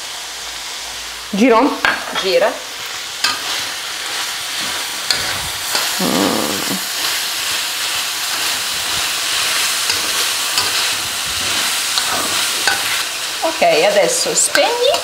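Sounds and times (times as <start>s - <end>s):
meat sizzling in a wok: 0.0s - 15.0s
spatula scraping a wok: 3.2s - 13.4s.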